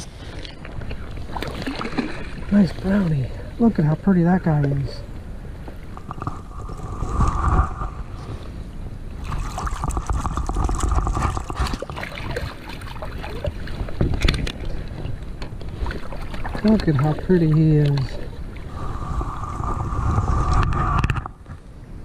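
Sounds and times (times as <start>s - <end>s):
creek water splashing: 0.0s - 4.8s, 9.1s - 20.0s.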